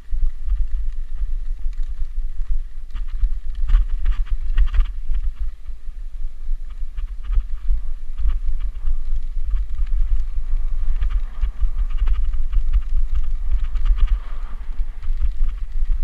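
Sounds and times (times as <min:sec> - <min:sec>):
wind buffeting microphone: 0:00.0 - 0:16.0
bike rattling over bumps: 0:02.9 - 0:05.8, 0:06.7 - 0:16.0.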